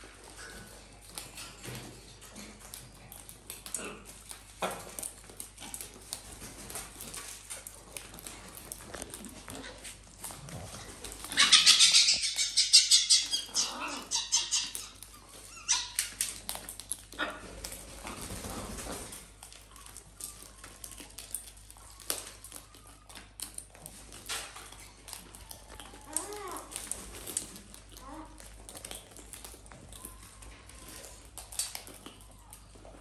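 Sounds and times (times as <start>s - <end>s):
parrots cracking seeds: 0.1s - 33.0s
harsh rapid animal calls: 11.3s - 16.2s.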